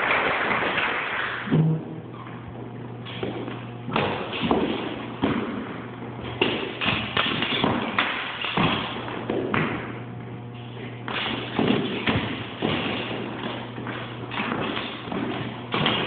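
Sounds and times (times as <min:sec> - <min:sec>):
sharp foot taps: 0:02.5 - 0:10.0, 0:10.8 - 0:16.0.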